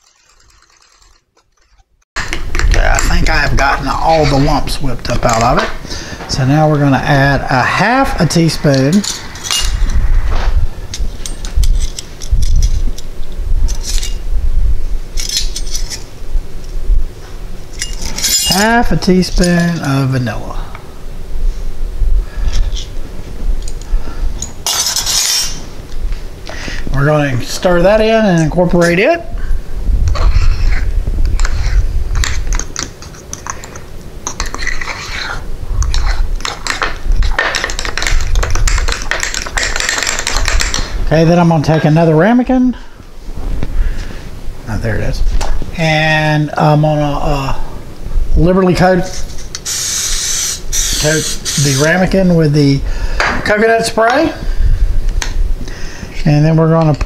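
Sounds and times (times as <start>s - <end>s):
metal spoons jingling and clinking: 0.0s - 1.8s, 17.8s - 18.7s.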